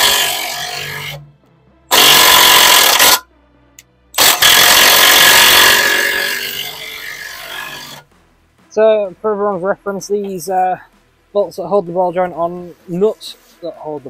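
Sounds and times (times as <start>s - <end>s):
impact wrench hammering: 0.0s - 1.2s, 1.9s - 3.2s, 4.2s - 8.0s.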